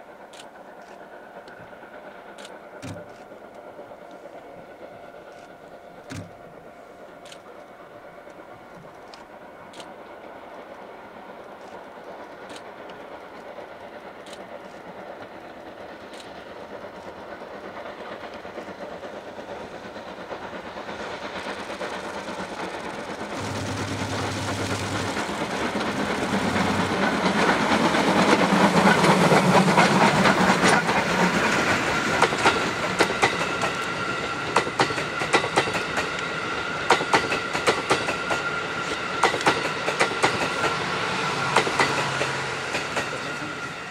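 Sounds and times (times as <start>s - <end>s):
wheels clicking over rail joints: 2.3s - 4.3s, 11.4s - 40.8s.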